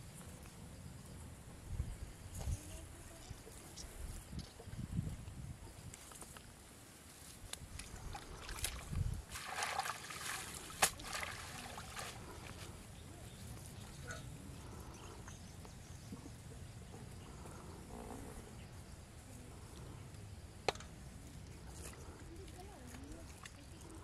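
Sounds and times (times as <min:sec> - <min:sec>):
water sloshing and dripping: 0:07.7 - 0:12.7, 0:21.7 - 0:24.0.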